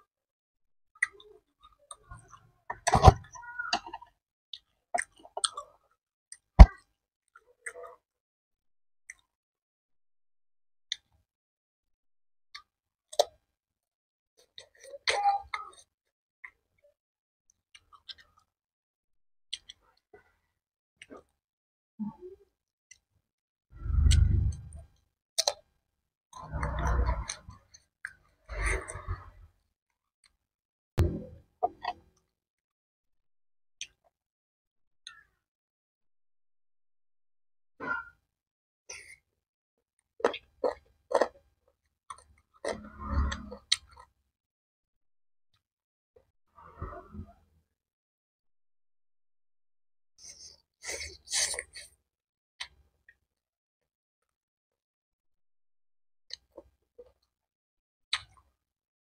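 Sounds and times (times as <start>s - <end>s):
wet crunchy chewing: 40.2s - 41.3s.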